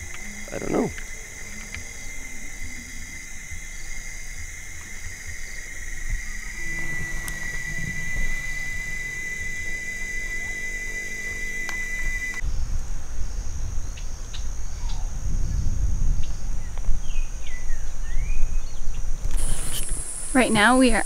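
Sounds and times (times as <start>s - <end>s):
insects trilling: 0.0s - 21.0s
wind buffeting microphone: 5.9s - 10.2s, 12.4s - 19.6s.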